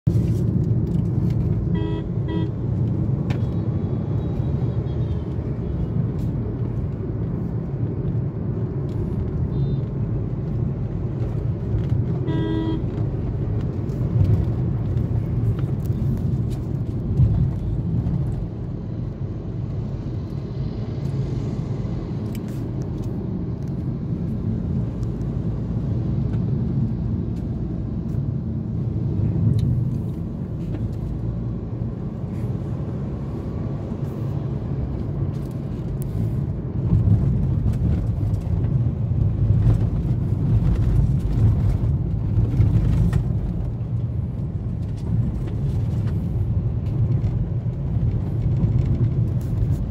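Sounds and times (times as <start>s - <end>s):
car engine and road rumble: 0.0s - 49.9s
car horn beep: 1.6s - 2.6s, 12.2s - 13.0s.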